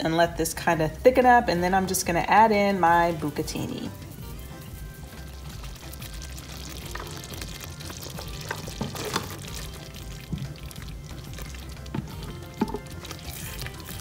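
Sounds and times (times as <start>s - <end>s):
soft background music: 0.0s - 14.0s
spatula stirring pasta in sauce: 4.3s - 14.0s
spatula knocking against pan: 11.9s - 13.0s.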